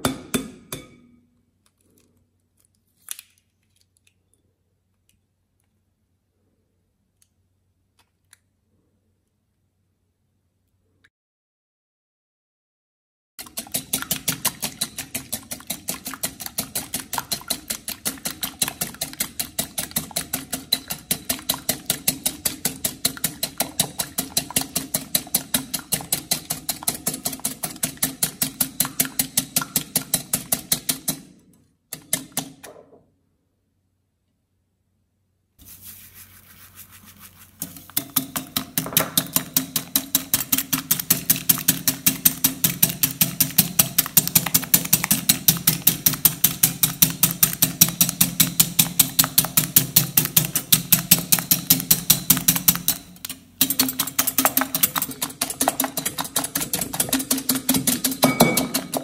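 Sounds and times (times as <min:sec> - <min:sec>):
whisk clicking against glass bowl: 0:13.4 - 0:31.2, 0:37.5 - 0:59.0.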